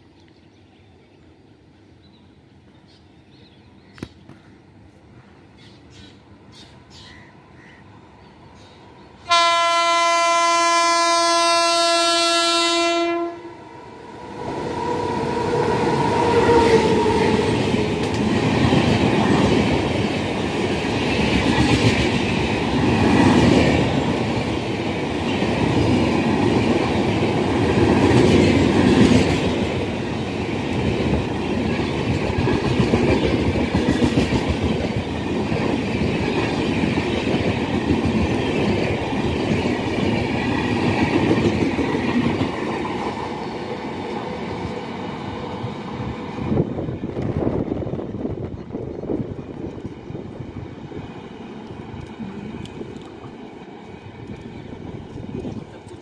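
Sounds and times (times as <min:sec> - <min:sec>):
locomotive horn blast: 0:09.3 - 0:13.6
train coaches clickety-clack: 0:14.8 - 0:56.0.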